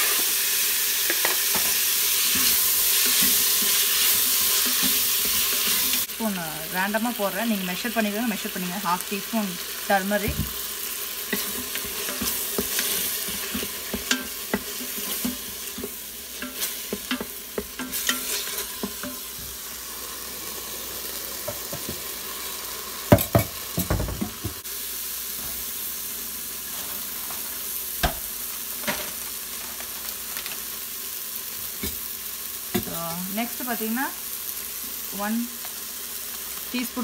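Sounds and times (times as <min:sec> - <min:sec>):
food sizzling in a pot: 0:00.0 - 0:37.0
wooden spoon scraping a pot: 0:11.3 - 0:19.2.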